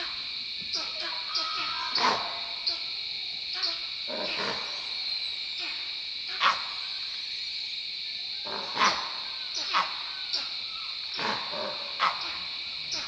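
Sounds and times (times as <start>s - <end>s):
sharp animal barks: 1.7s - 2.4s, 6.3s - 6.7s, 8.5s - 10.0s, 11.2s - 13.0s.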